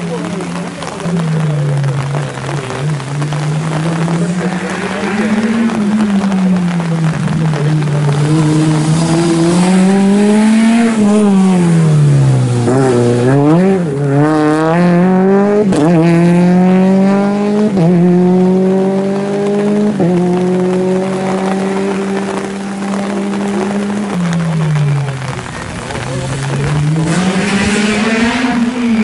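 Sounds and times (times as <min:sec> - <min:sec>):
rally car engine accelerating: 0:00.0 - 0:29.0.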